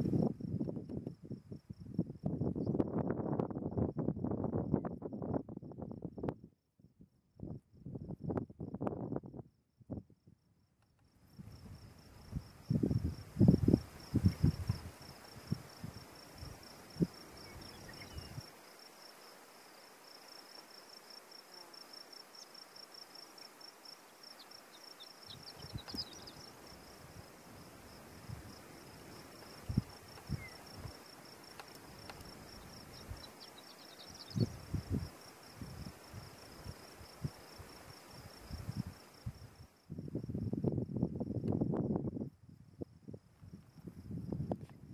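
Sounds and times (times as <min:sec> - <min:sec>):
high insect trill: 0:10.2 - 0:44.9.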